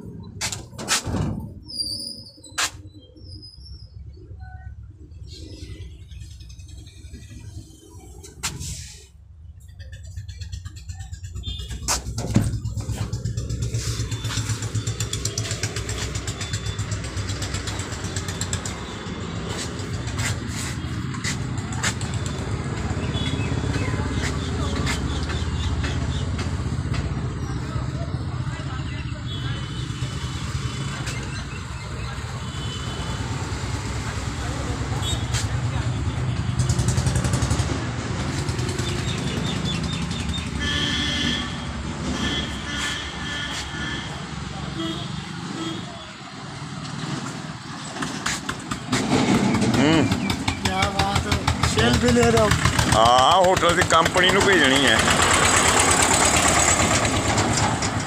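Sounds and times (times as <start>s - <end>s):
engine rumbling: 0.0s - 58.0s.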